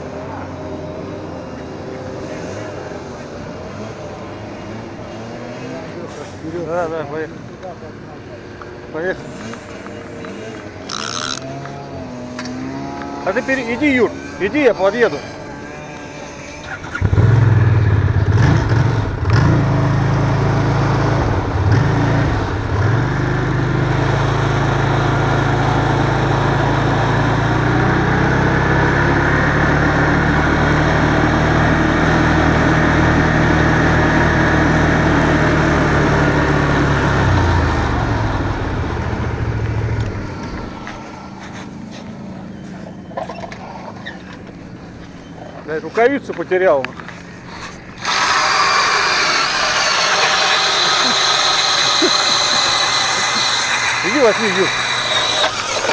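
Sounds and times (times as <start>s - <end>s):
snowmobile engine revving: 8.9s - 42.0s, 47.5s - 55.9s.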